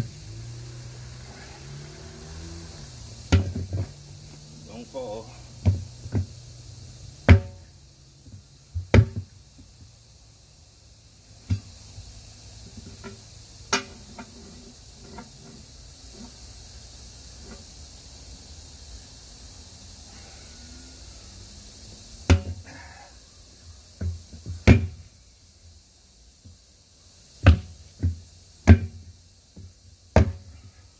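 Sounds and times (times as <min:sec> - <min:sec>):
tire irons scraping metal wheel: 0:00.0 - 0:06.1, 0:12.7 - 0:16.4.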